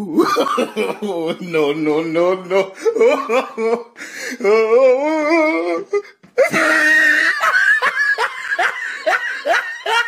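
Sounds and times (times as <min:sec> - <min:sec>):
person wailing: 0:00.0 - 0:10.0
person laughing breathily: 0:05.9 - 0:10.0.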